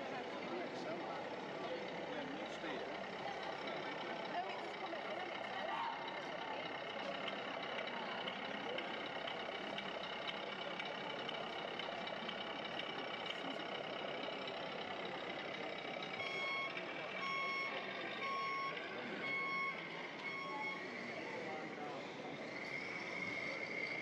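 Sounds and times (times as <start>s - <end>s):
crowd chatter: 0.0s - 24.0s
repeated electronic beeps: 16.2s - 21.0s.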